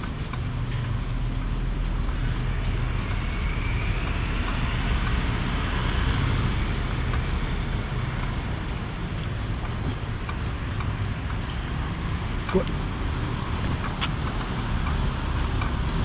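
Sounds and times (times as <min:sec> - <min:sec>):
faint whine: 0:00.0 - 0:11.6
road traffic rumble: 0:00.0 - 0:16.0.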